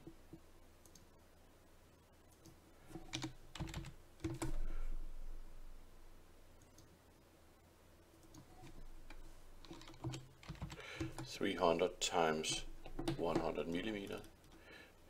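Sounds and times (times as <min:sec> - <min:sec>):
low steady hum: 0:00.0 - 0:15.0
keyboard keystrokes: 0:03.1 - 0:04.6, 0:09.6 - 0:11.3.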